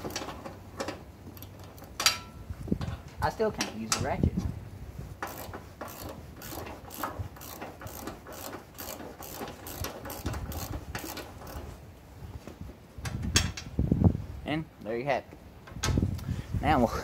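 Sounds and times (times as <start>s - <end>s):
socket ratchet clicking: 5.2s - 11.6s.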